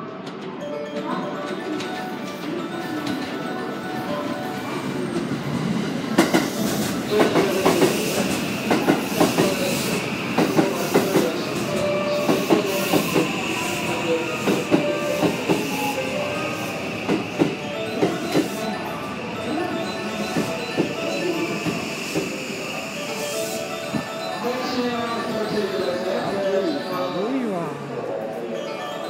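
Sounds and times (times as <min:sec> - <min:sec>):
train high whine: 0:01.4 - 0:28.8.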